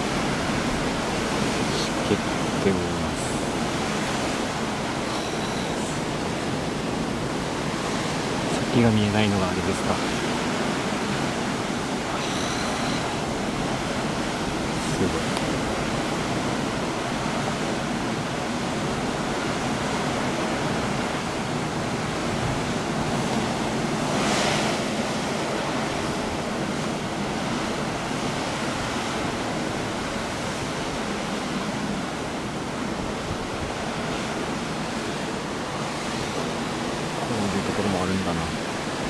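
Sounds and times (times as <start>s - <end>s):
wave crash: 22.4s - 26.8s.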